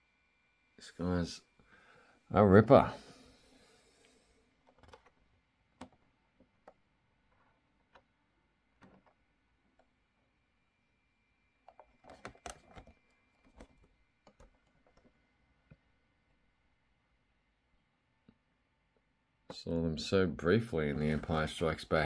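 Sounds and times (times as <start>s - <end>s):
packaging clicks and taps: 11.7s - 15.0s.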